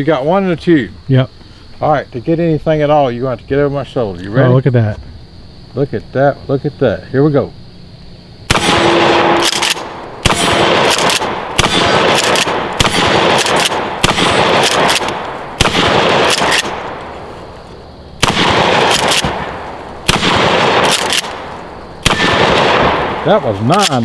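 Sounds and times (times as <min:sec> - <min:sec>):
shotgun blasts: 0:08.5 - 0:17.1, 0:18.2 - 0:24.0.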